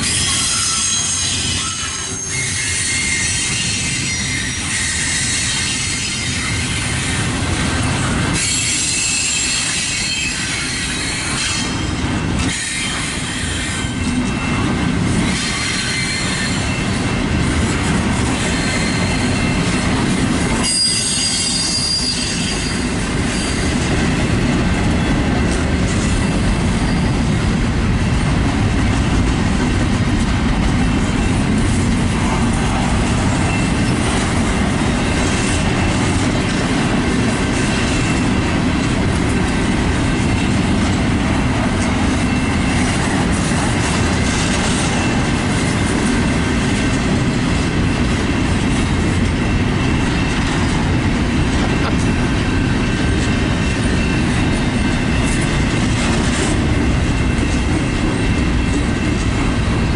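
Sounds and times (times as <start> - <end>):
high-pitched wheel squeal: 0.0 - 6.5, 8.4 - 11.8, 15.3 - 16.8, 18.4 - 19.6, 20.6 - 23.7
steel wheels rumbling on rails: 0.0 - 59.9.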